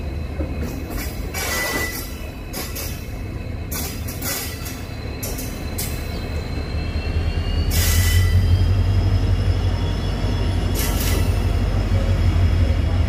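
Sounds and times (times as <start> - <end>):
train rumble on track: 0.0 - 13.0.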